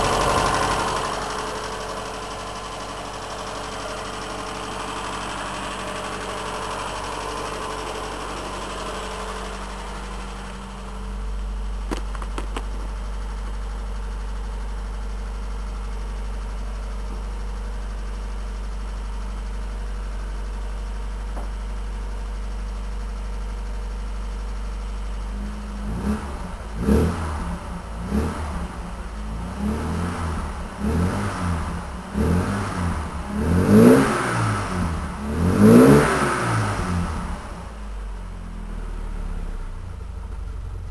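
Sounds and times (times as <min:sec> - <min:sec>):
car engine idling: 0:00.0 - 0:40.9
engine revving in throttle blips: 0:25.3 - 0:37.7.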